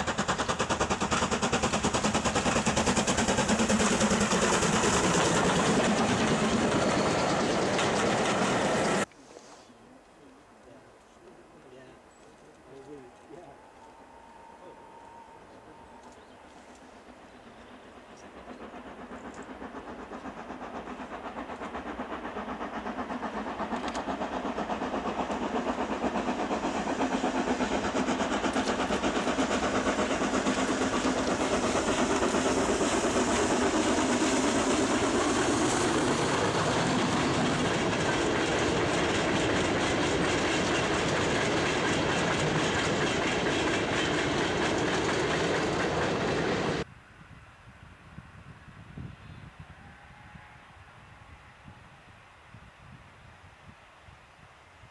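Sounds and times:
steam locomotive exhaust beat: 0.0s - 9.1s, 12.4s - 46.9s.

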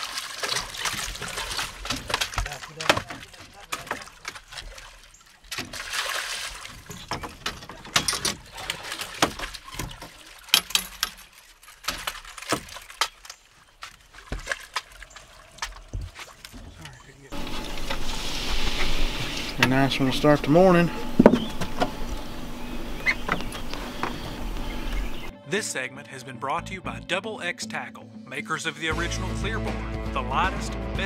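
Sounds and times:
water splashing: 0.0s - 25.3s
sharp knocks and clicks: 21.0s - 25.2s.

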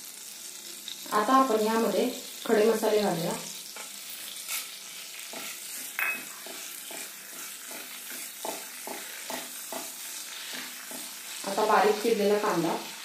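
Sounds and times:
spices sizzling in butter: 0.0s - 13.0s
wooden spatula scraping pan: 3.8s - 11.4s.

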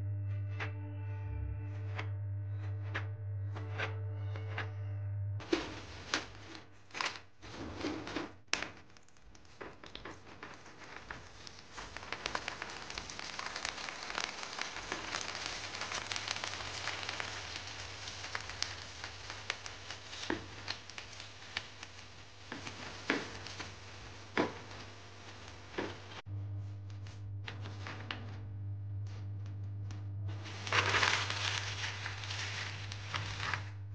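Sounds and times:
crackers sizzling in hot oil: 9.4s - 26.2s, 30.4s - 33.8s.

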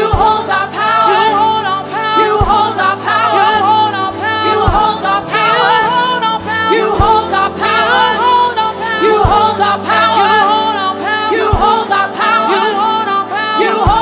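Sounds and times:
gospel singers singing together: 0.0s - 14.0s
keyboards and band playing: 0.0s - 14.0s
deep beat: 2.2s - 10.2s, 11.4s - 12.8s.

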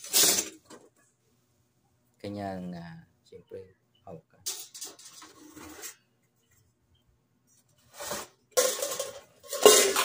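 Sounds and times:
metal steamer parts scraping: 0.0s - 0.6s, 4.5s - 6.0s, 7.9s - 10.0s.

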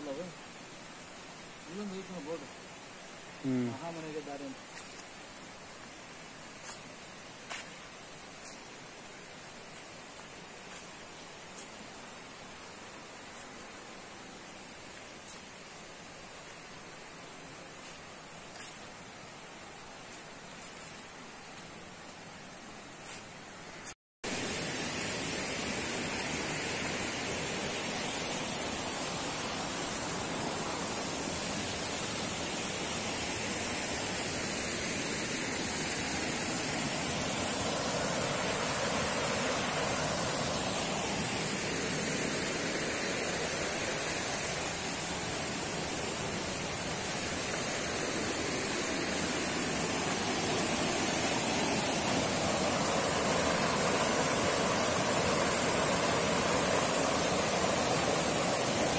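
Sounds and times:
high-pitched hiss: 0.0s - 58.9s
stream rushing over rocks: 24.2s - 58.9s.

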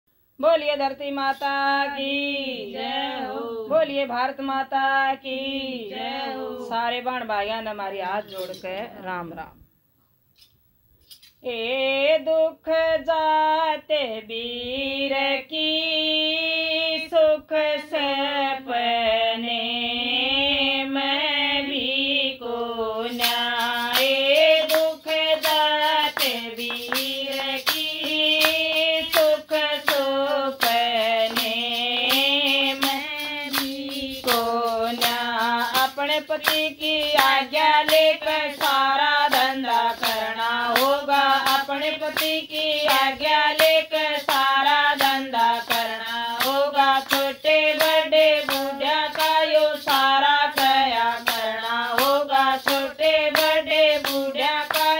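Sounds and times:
woman singing folk song: 0.4s - 8.8s, 11.4s - 54.9s
hand clapping: 23.1s - 54.9s.

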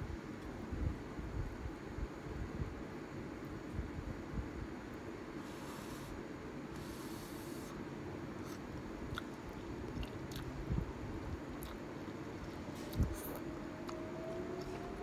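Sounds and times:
faint steady hum: 0.0s - 15.0s
wet chewing: 8.4s - 10.5s, 11.6s - 14.0s.

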